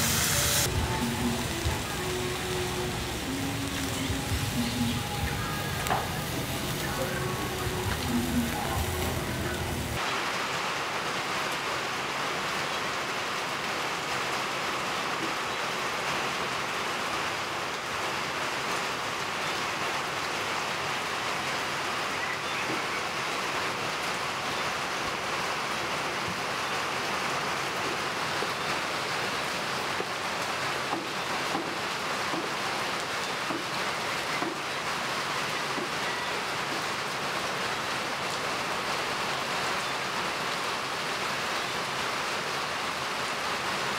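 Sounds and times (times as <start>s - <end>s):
steady rain falling: 0.0s - 43.9s.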